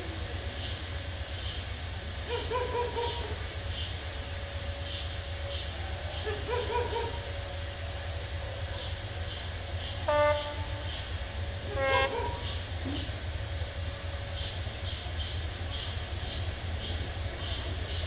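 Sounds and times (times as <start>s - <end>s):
locomotive rumble: 0.0s - 18.0s
locomotive horn blasts: 9.9s - 13.0s.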